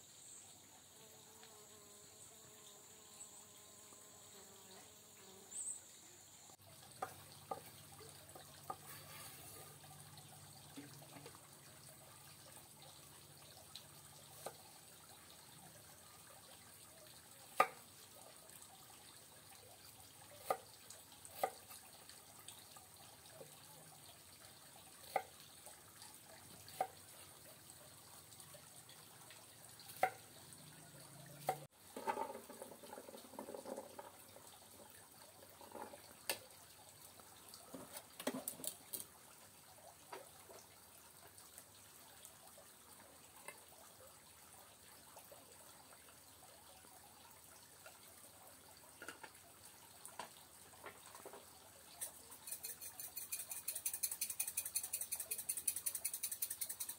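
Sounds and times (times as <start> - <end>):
water dripping and trickling: 6.5 - 56.9
small clicks and knocks: 50.2 - 56.9.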